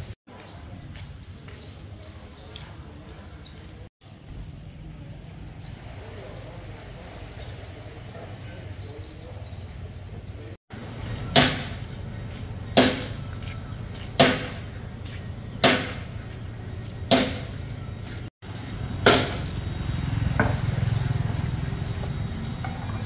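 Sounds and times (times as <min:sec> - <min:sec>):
low engine rumble: 0:04.0 - 0:23.0
heavy knocks with ring-out: 0:11.3 - 0:11.8, 0:12.7 - 0:13.2, 0:14.2 - 0:14.7, 0:15.6 - 0:16.2, 0:17.1 - 0:17.6, 0:19.0 - 0:19.5.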